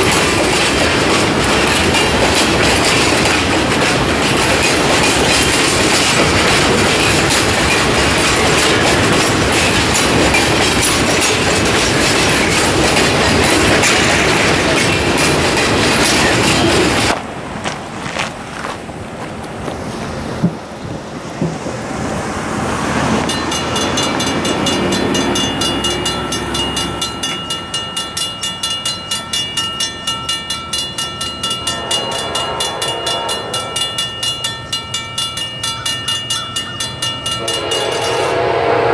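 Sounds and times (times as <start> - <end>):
train wheels rumbling on rail: 0.0 - 38.9.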